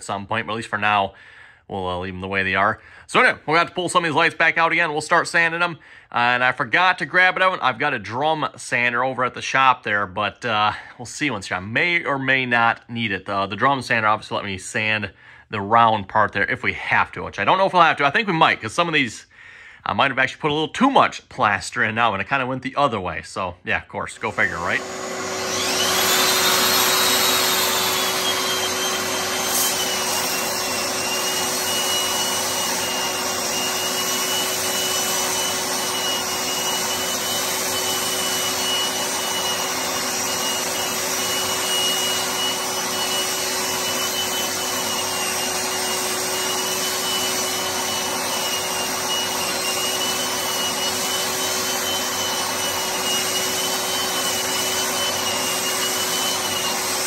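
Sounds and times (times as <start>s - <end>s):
electric drywall sander: 24.2s - 57.0s.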